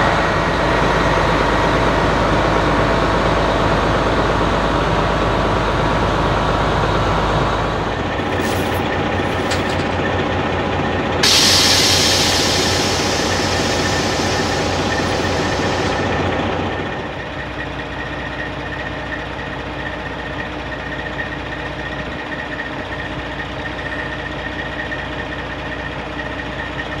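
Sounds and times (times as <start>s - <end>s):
diesel engine idling: 0.0s - 27.0s
hiss: 11.2s - 16.4s
high whine: 11.2s - 17.2s.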